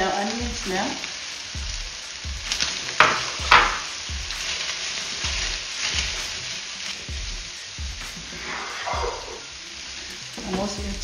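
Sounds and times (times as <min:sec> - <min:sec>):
onion sizzling in hot oil: 0:00.0 - 0:11.0
spatula stirring pan: 0:00.0 - 0:11.0.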